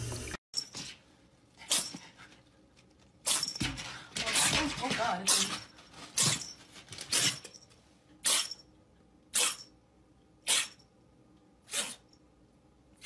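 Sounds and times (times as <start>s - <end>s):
kitten hissing: 8.2s - 8.6s, 9.3s - 9.6s, 10.4s - 10.8s, 11.6s - 12.1s.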